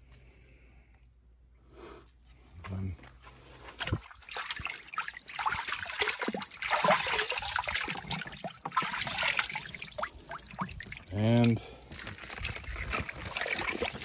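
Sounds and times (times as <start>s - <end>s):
chicken dunked in water splashing: 3.7s - 14.0s
water trickling and dripping: 3.8s - 14.0s.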